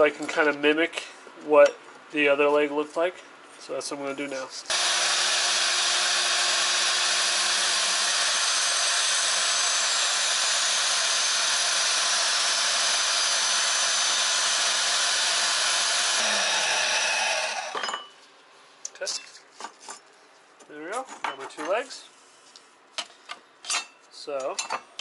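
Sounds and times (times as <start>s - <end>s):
band saw cutting metal tube: 4.7s - 17.8s.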